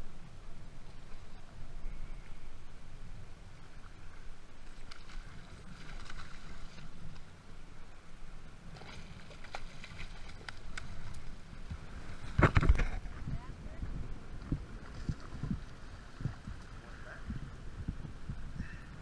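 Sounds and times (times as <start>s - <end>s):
wind rumble on microphone: 0.0s - 19.0s
water splashing: 3.8s - 7.3s, 8.7s - 13.2s.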